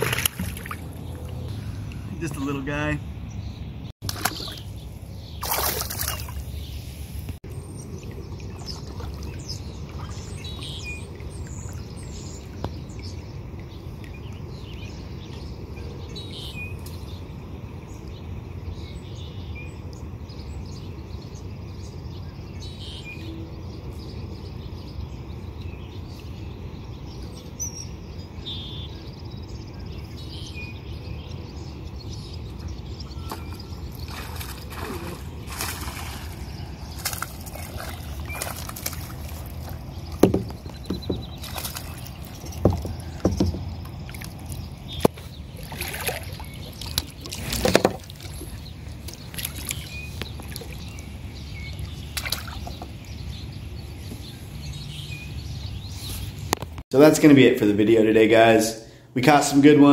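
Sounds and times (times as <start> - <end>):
fish splashing into water: 0.0 - 1.0, 4.0 - 4.7, 5.4 - 6.5, 33.2 - 51.0, 51.8 - 52.8
songbirds chirping and singing: 0.0 - 59.9.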